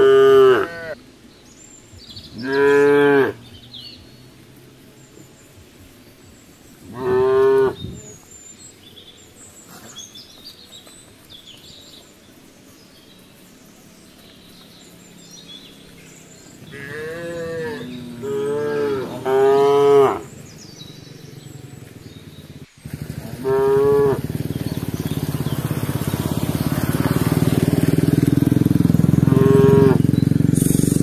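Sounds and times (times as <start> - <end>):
cattle mooing: 0.0 - 1.0, 2.4 - 3.4, 6.9 - 8.0, 16.6 - 20.4, 22.9 - 24.3, 29.2 - 30.1.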